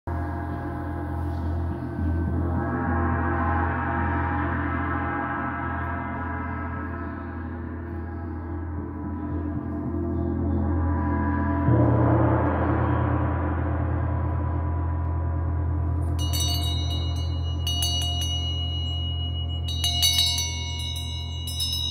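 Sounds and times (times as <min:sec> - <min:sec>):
large gongs ringing: 0:11.7 - 0:21.9.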